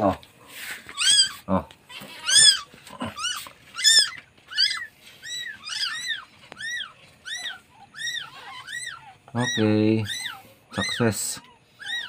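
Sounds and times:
kitten mewing: 0:00.9 - 0:12.0.

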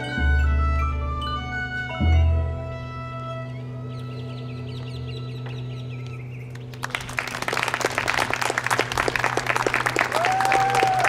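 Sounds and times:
children's music ensemble: 0:00.0 - 0:03.3
audience applause: 0:06.5 - 0:11.0.

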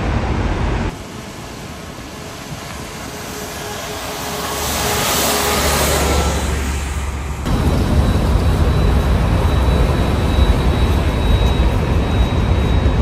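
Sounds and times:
distant road traffic: 0:00.0 - 0:13.0
wind rumble: 0:00.0 - 0:13.0.

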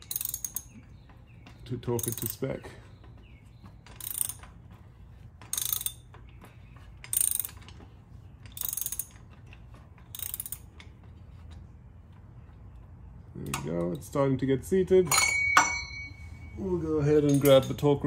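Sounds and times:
socket ratchet clicking: 0:00.0 - 0:00.7, 0:05.5 - 0:06.0, 0:10.0 - 0:10.9.

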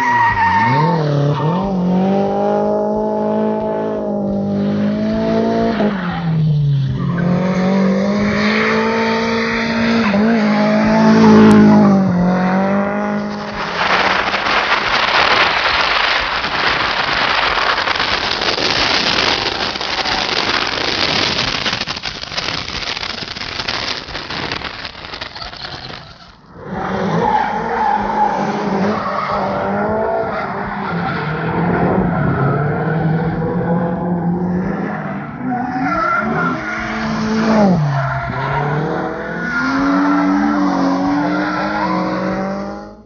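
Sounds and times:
tyres skidding: 0:00.0 - 0:42.8
car engine revving: 0:00.2 - 0:21.4
loud rushing noise: 0:09.1 - 0:24.9.

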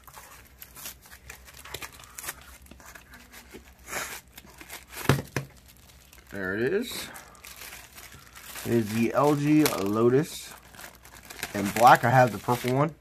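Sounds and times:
plastic wrap crinkling: 0:00.0 - 0:13.0
cardboard and tape tearing: 0:10.6 - 0:12.9.

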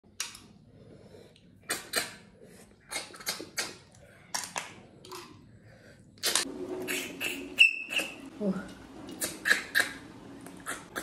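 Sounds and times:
mouth sucking and smacking: 0:01.4 - 0:03.9, 0:06.8 - 0:08.2, 0:09.1 - 0:11.0.

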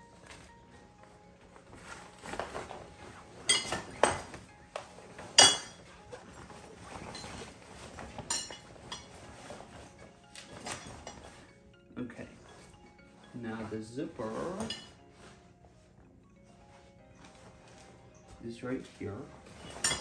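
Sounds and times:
metal bars clinking against frame: 0:03.4 - 0:04.4, 0:19.5 - 0:20.0.

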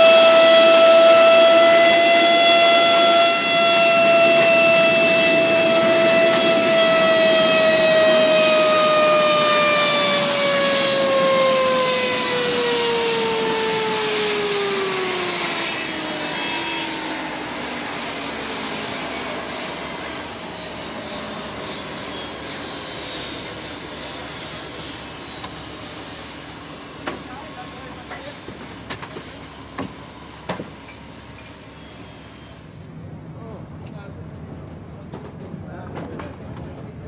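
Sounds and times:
turbine engine spooling down: 0:00.0 - 0:28.2.

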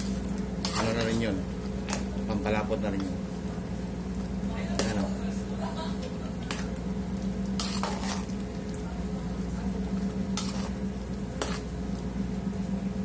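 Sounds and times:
steady low hum: 0:00.0 - 0:13.0
metal turner scraping pot: 0:07.6 - 0:08.3, 0:10.4 - 0:10.8.

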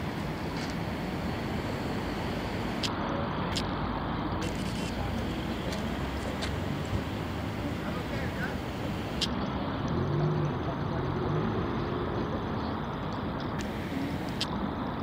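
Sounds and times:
engine running: 0:00.0 - 0:03.6, 0:04.4 - 0:11.0, 0:13.5 - 0:14.5
faint clicks: 0:02.5 - 0:03.7, 0:13.1 - 0:14.5.

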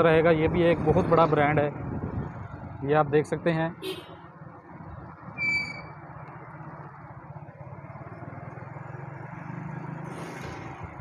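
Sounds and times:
vehicle engine rumble: 0:00.0 - 0:11.0
short high-pitched beep: 0:05.4 - 0:05.9.

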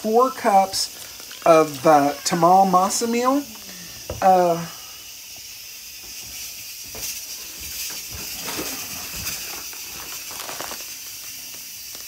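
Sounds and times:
steady hiss: 0:00.0 - 0:12.0
bag rustling: 0:08.1 - 0:12.0.

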